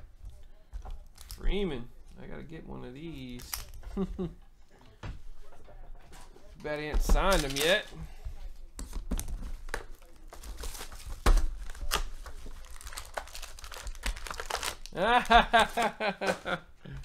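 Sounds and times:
plastic wrapping crinkling and tearing: 1.1s - 1.4s, 7.2s - 7.9s, 9.1s - 15.9s.

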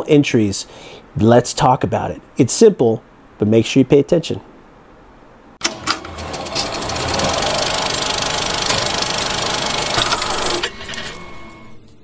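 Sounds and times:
film projector clatter: 5.6s - 11.6s.

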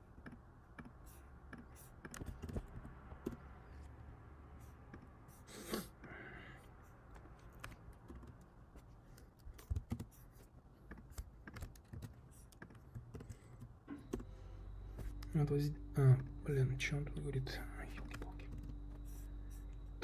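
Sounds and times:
computer keyboard clicks: 7.1s - 8.5s, 9.1s - 10.2s, 10.8s - 14.3s.

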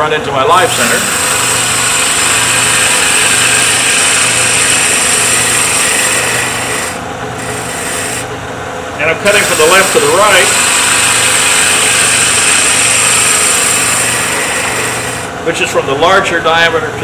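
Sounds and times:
lathe motor hum: 0.0s - 16.9s
gouge cutting wood on lathe: 0.6s - 8.4s, 9.0s - 15.4s.

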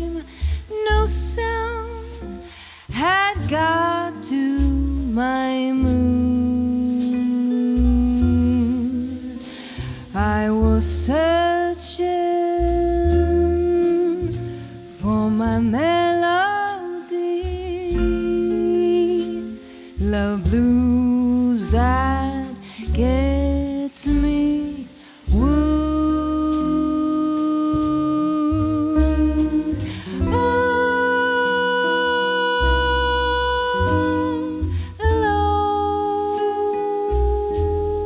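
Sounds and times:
double bass: 0.0s - 38.0s
guitar: 0.0s - 38.0s
woman singing: 0.0s - 38.0s.

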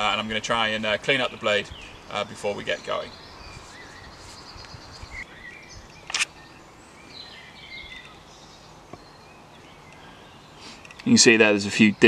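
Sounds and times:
birds chirping: 0.0s - 12.0s
steady background hiss: 0.0s - 12.0s.

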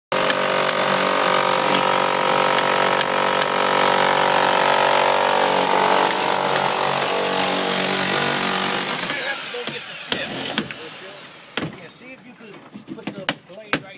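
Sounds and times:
demolition hammer chiseling brick: 0.1s - 11.9s, 12.7s - 13.9s.

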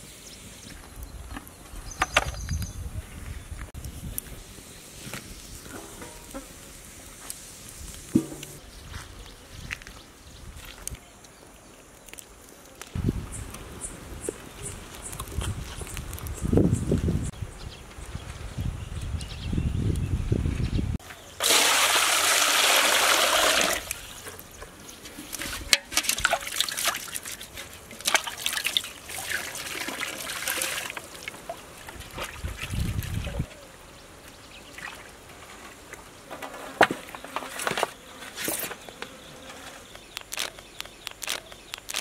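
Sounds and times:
knocks: 8.2s - 8.6s
water pouring into metal pot: 21.4s - 24.0s, 28.0s - 31.2s
water splashing: 25.4s - 33.4s.

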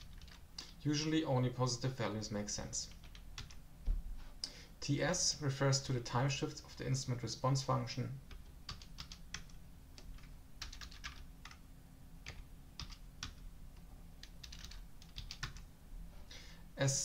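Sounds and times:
computer keyboard typing: 0.0s - 0.8s, 2.9s - 3.6s, 8.3s - 11.6s, 12.2s - 13.4s, 14.2s - 15.7s.

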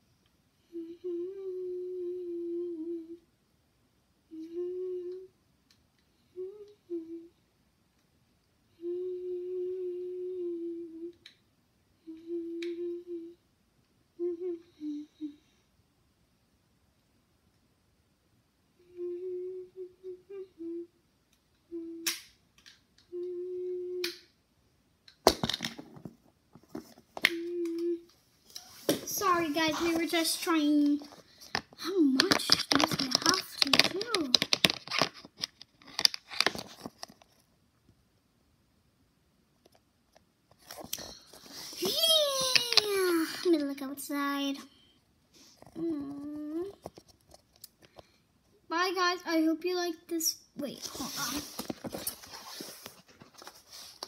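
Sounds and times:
child humming: 0.6s - 3.2s, 4.3s - 5.4s, 6.3s - 7.4s, 8.7s - 11.3s, 12.0s - 13.4s, 14.2s - 15.5s, 18.8s - 21.0s, 21.6s - 22.2s, 23.0s - 24.2s, 27.2s - 31.1s, 45.7s - 46.9s.

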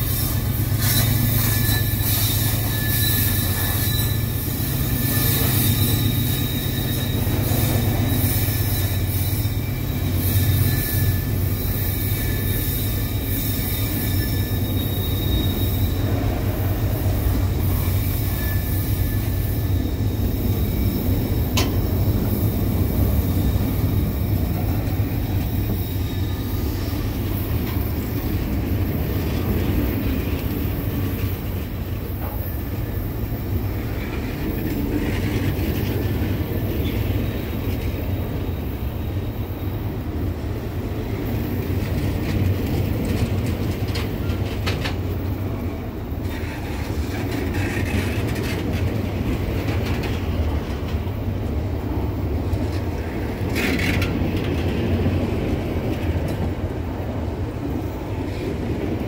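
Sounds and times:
high wheel squeal: 0.0s - 44.8s.

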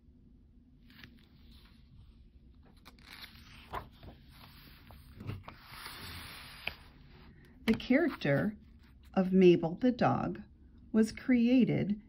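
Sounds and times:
book pages turning: 0.8s - 9.2s.

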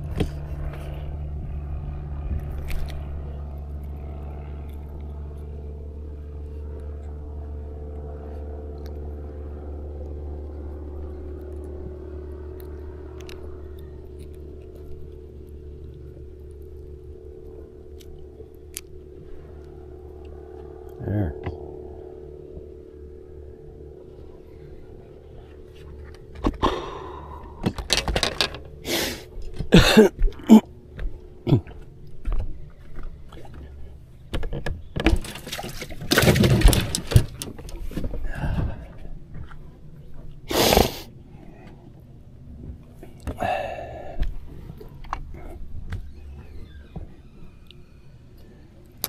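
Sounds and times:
low steady hum: 0.0s - 49.0s
handling knocks and rattles: 27.6s - 28.8s, 32.3s - 38.3s.

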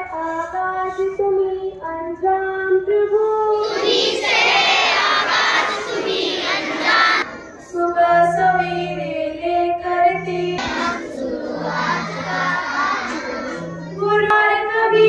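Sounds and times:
children singing together: 3.5s - 14.3s.

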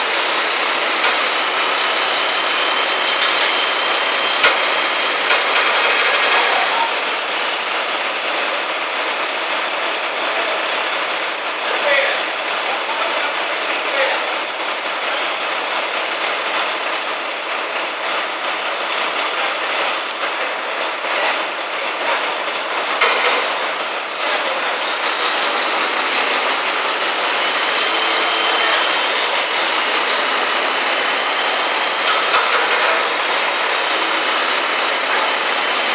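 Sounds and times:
truck engine and crane hydraulics: 0.0s - 11.6s, 14.4s - 35.9s.

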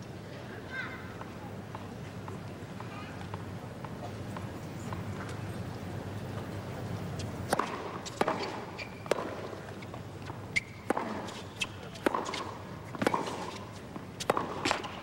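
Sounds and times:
racquets striking tennis ball: 7.2s - 15.0s
tennis ball bouncing: 7.2s - 15.0s.

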